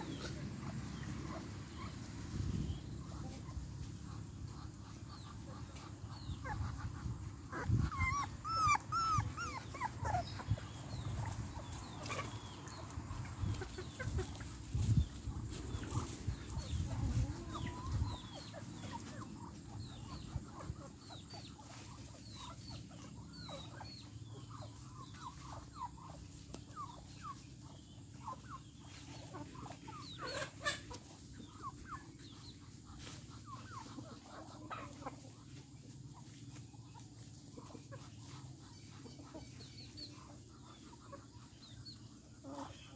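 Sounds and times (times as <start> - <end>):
chicks peeping: 0.0 - 42.9
puppy whining: 7.5 - 11.3.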